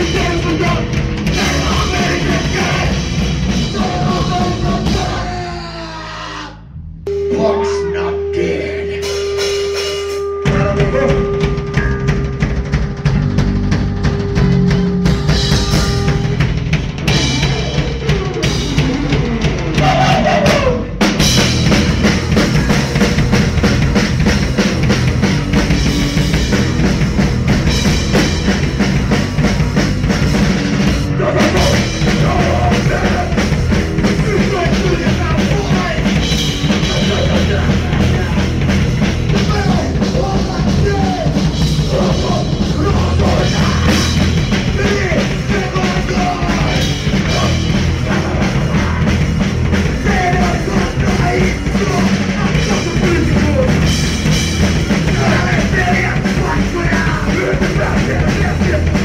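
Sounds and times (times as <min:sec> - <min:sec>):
drum kit: 0:00.0 - 0:06.4, 0:07.1 - 0:59.0
distorted bass and guitar: 0:00.0 - 0:59.0.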